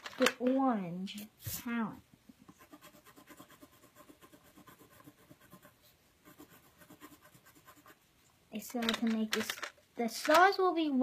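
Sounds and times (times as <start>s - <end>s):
pencil scratching on paper: 2.5s - 8.0s.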